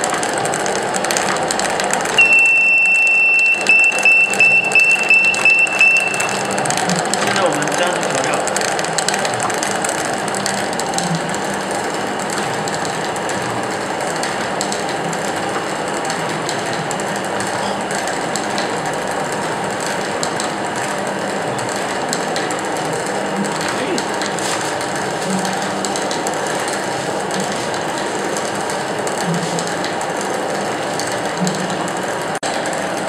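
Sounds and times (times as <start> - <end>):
stirring machine rattle: 0.0 - 33.0
buzzer beeps: 2.2 - 6.6.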